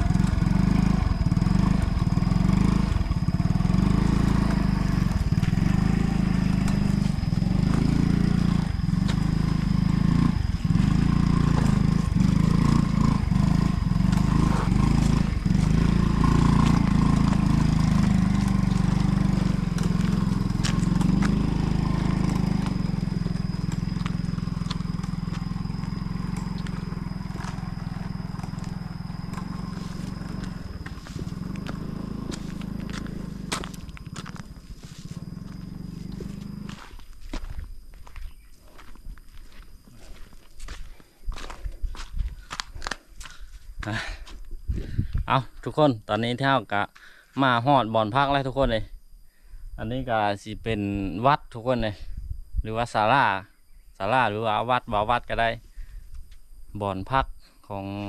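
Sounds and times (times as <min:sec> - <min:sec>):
small engine running: 0:00.0 - 0:37.7.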